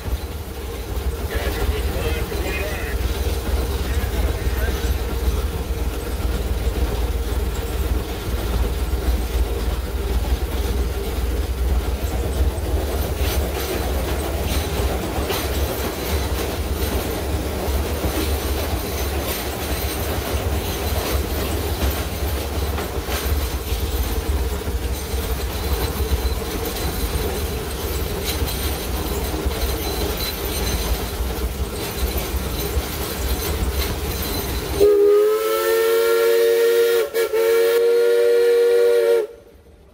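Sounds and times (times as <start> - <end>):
wheels rumbling on rails: 0.0 - 39.9
wheel squeal: 31.8 - 34.8.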